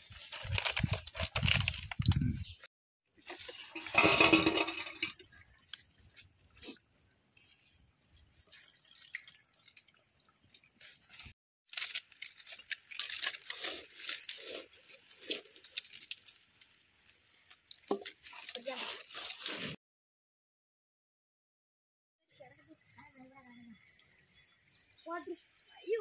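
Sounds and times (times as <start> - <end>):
food clattering onto steel plate: 3.8 - 5.2
fried food crunching: 11.7 - 16.6.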